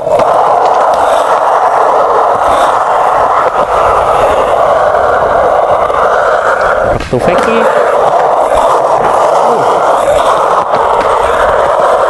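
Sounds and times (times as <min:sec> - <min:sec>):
skate bearings grinding on concrete: 0:00.0 - 0:12.0.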